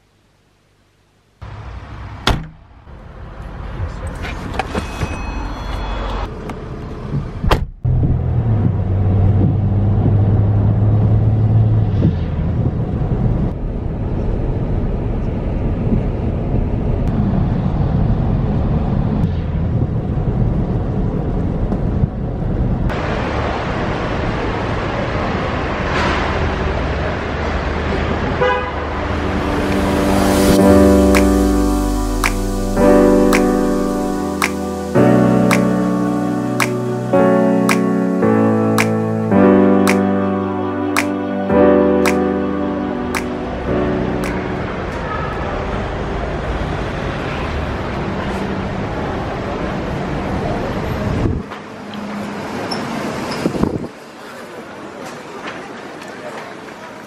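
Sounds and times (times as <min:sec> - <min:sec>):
outdoor traffic noise: 0:00.0 - 0:57.0
car engine and tyres rumble: 0:01.4 - 0:34.9.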